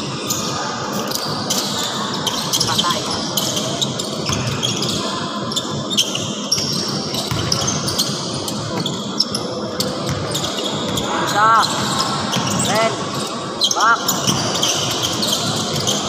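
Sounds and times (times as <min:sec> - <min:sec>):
sneaker squeaks: 0:00.3 - 0:16.0
basketball bouncing: 0:06.6 - 0:07.8, 0:10.1 - 0:11.0.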